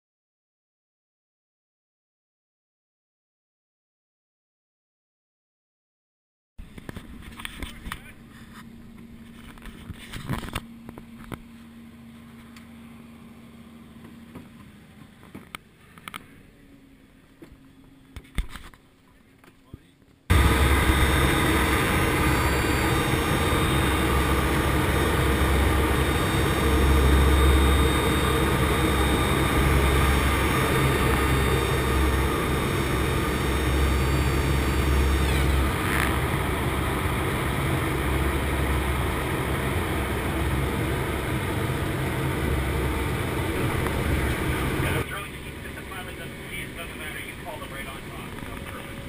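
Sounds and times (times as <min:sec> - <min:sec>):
turboprop engines droning: 0:06.7 - 0:18.3, 0:20.3 - 0:49.0
rushing air: 0:20.3 - 0:45.0.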